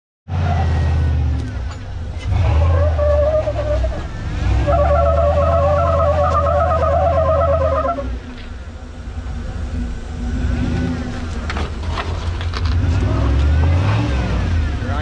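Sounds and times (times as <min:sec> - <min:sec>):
wavering squeal: 0:00.3 - 0:08.4
engine running at low revs: 0:00.3 - 0:15.0.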